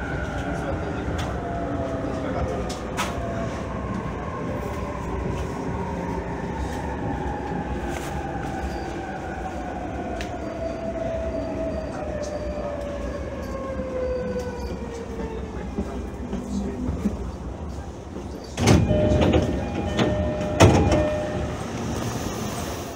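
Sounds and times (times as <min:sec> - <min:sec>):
train running rumble: 0:11.9 - 0:22.9.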